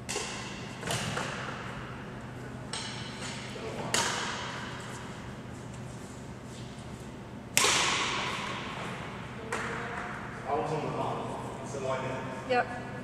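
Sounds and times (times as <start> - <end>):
racket striking shuttlecock: 0.0 - 1.6, 2.7 - 4.7, 7.5 - 8.9.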